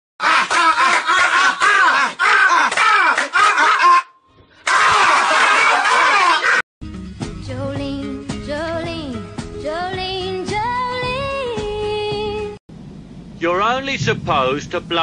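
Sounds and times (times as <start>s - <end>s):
shrill screaming and wailing voice: 0.2s - 6.6s.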